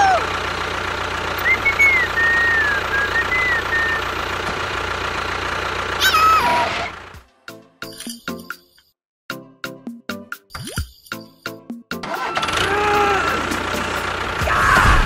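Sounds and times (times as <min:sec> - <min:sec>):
tractor engine running: 0:00.0 - 0:07.3, 0:11.9 - 0:15.0
light plinking music: 0:07.8 - 0:08.8, 0:09.8 - 0:11.8.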